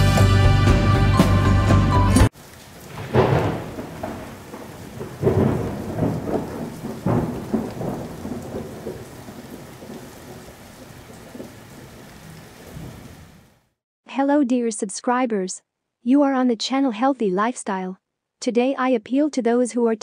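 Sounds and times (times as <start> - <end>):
music: 0.0 - 2.3.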